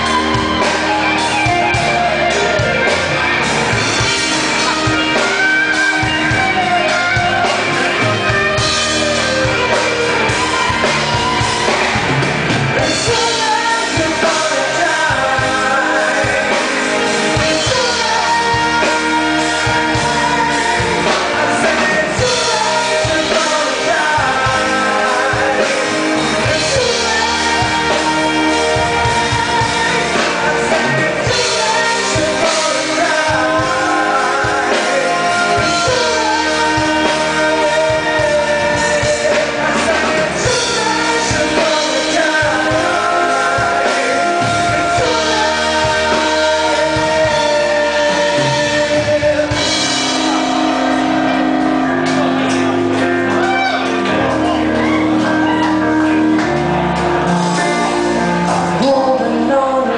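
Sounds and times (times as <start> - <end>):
drum kit: 0.0 - 59.9
electric guitar: 0.0 - 59.9
woman singing: 12.9 - 49.7.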